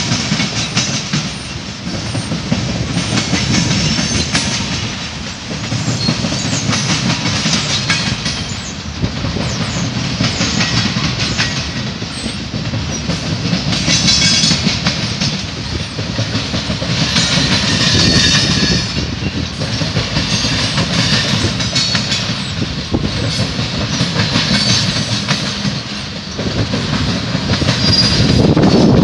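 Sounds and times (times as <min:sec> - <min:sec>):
freight train rolling past: 0:00.0 - 0:29.0
wheels clicking over rail joints: 0:00.0 - 0:29.0.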